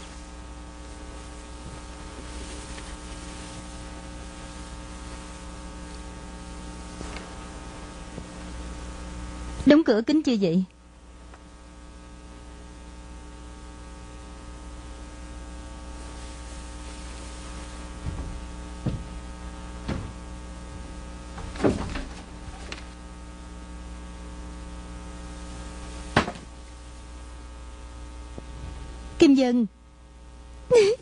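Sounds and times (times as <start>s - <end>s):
steady low hum: 0.0s - 31.0s
soft knocks: 18.0s - 19.2s, 19.8s - 22.3s.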